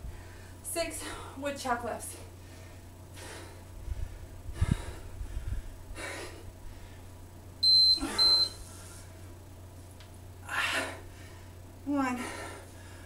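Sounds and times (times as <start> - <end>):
woman breathing hard: 0.0 - 1.4, 2.3 - 7.1, 10.4 - 11.6, 12.2 - 13.0
short electronic beep: 7.6 - 8.6.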